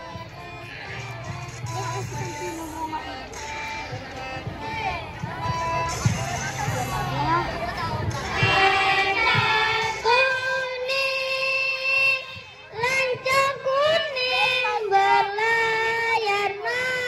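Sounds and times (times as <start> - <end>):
child singing: 7.1 - 17.0.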